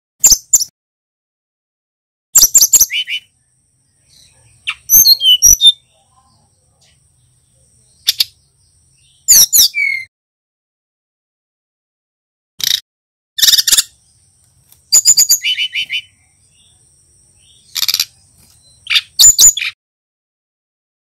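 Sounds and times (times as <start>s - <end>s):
bird singing sharp chirps: 2.4s - 10.1s, 13.4s - 14.2s, 14.9s - 16.8s, 17.4s - 19.8s.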